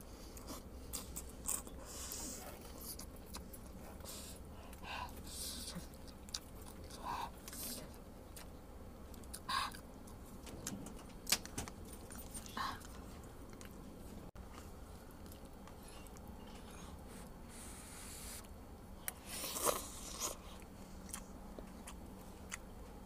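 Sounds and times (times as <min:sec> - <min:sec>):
person chewing noodles: 0:00.1 - 0:10.3, 0:18.2 - 0:23.0.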